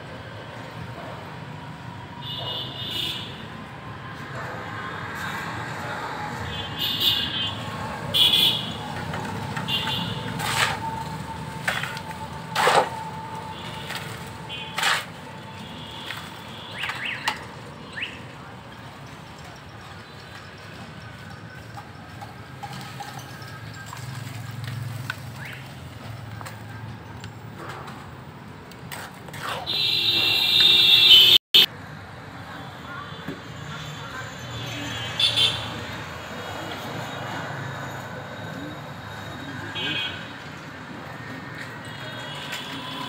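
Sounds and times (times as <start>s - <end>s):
shovel scraping wet cement: 9.9s - 15.2s, 28.9s - 29.7s.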